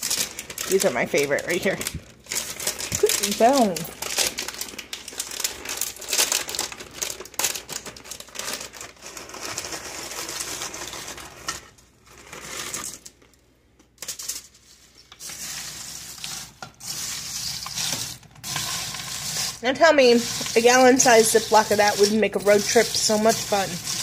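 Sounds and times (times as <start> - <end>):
snack mix being stirred: 2.2 - 8.0, 15.2 - 24.0.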